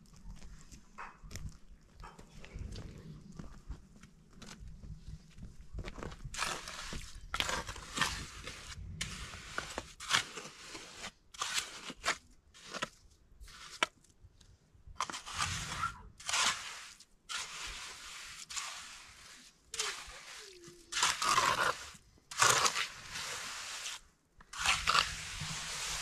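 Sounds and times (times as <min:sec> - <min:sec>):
trowel scraping wet cement: 0:06.2 - 0:13.9, 0:15.0 - 0:26.0.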